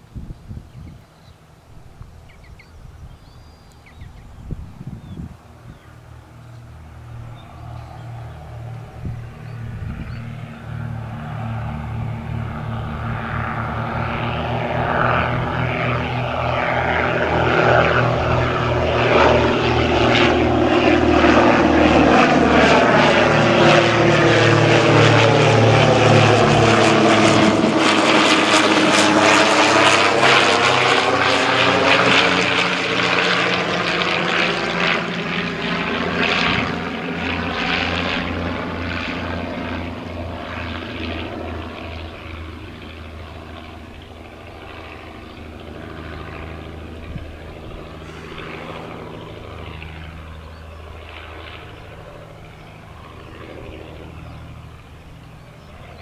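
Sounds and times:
propeller plane engines droning: 0.0s - 56.0s.

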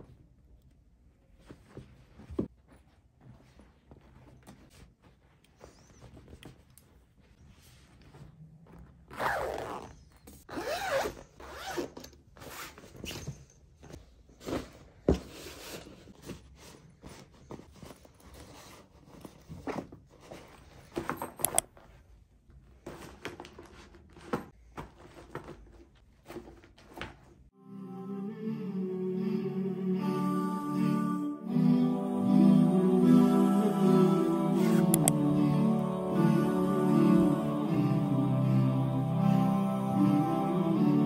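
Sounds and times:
fabric rustling: 1.0s - 11.7s
zipper being pulled: 9.1s - 13.1s.

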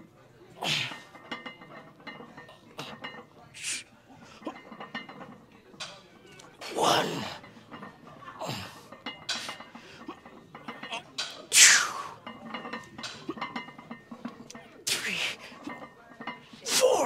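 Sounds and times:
man grunting: 16.7s - 17.0s.

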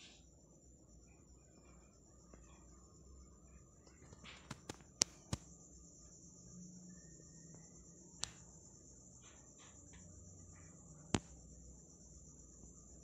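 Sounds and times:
crickets trilling: 0.0s - 13.0s
sharp clicks: 8.2s - 8.5s.

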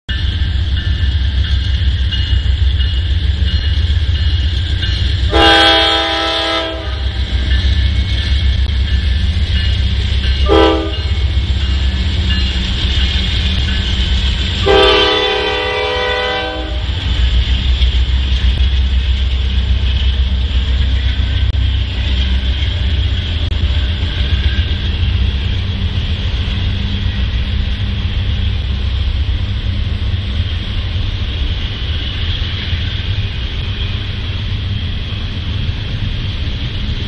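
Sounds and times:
freight train rumble: 0.1s - 37.0s
locomotive air horn blasts: 5.3s - 7.2s, 10.4s - 11.2s, 14.6s - 17.0s.

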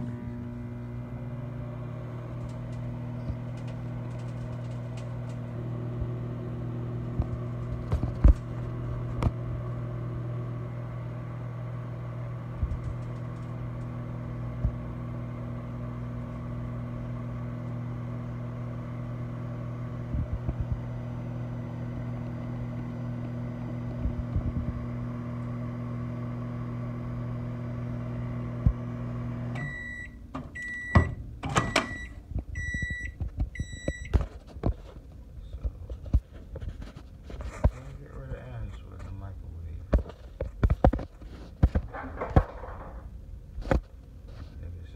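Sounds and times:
microwave oven humming: 0.0s - 44.9s
microwave beeps: 29.1s - 34.2s.

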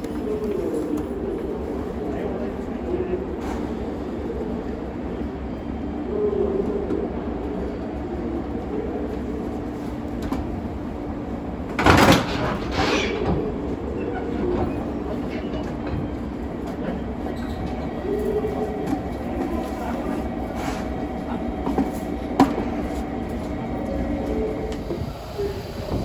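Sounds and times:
train humming: 0.0s - 26.0s
train couplers clanking: 11.7s - 17.9s.

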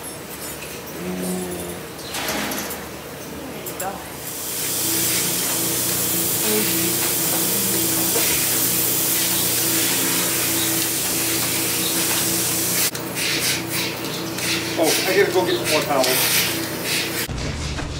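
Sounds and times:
low machine hum: 0.9s - 17.9s
milking machine air hiss: 4.4s - 17.3s.

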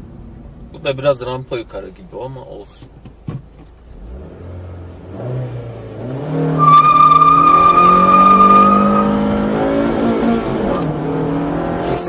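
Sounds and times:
car engine revving: 3.9s - 12.0s
tyres squealing: 6.5s - 9.6s.

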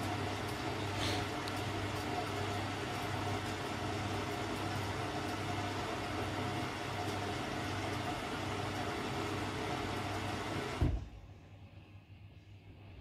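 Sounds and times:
washing machine running: 0.0s - 11.2s
washing machine thump: 10.6s - 11.1s.

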